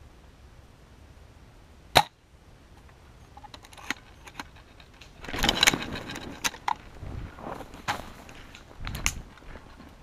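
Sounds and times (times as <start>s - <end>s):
footsteps crunching dry leaves: 6.9s - 9.9s.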